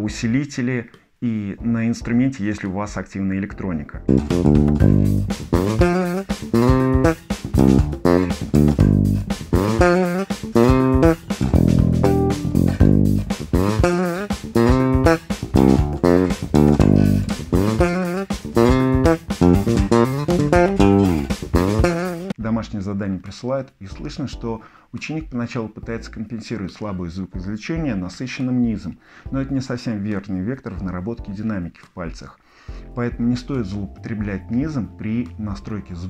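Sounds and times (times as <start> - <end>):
electric bass guitar fingerstyle: 4.0 - 22.4.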